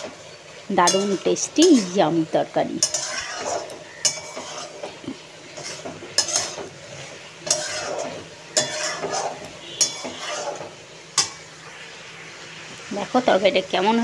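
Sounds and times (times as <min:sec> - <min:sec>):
pan sizzling: 0:00.0 - 0:14.0
metal spatula scraping a pot: 0:00.8 - 0:02.1, 0:02.8 - 0:11.5.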